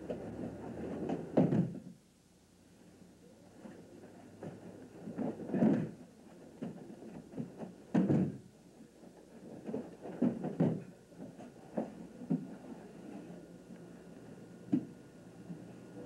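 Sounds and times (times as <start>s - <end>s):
feet stepping on mats: 0.0s - 1.9s, 3.6s - 12.6s
bodies thudding onto padded mats: 0.9s - 1.8s, 4.4s - 6.0s, 7.4s - 8.5s, 10.1s - 10.9s.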